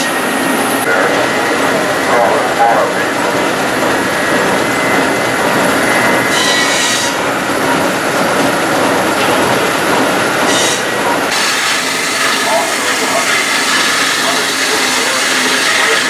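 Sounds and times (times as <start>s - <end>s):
steam engine running: 0.0s - 16.0s.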